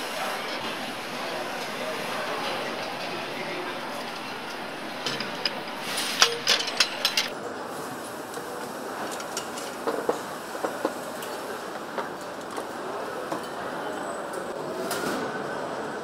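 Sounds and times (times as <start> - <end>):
factory hum: 0.0 - 16.0
metal parts clinking: 4.0 - 7.3.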